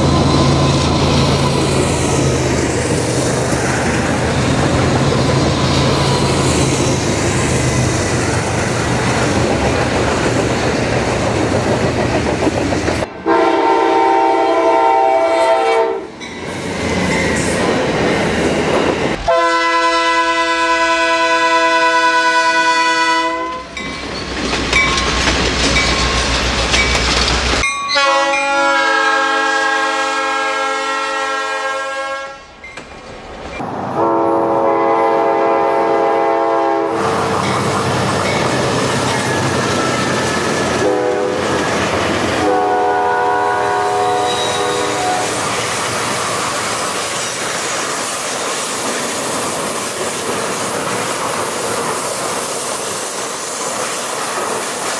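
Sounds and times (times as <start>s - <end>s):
passing train rumble and clatter: 0.0s - 54.9s
train air horn blasts: 13.2s - 16.2s, 19.2s - 23.7s, 27.9s - 32.6s, 34.0s - 37.3s, 40.8s - 41.5s, 42.4s - 45.4s.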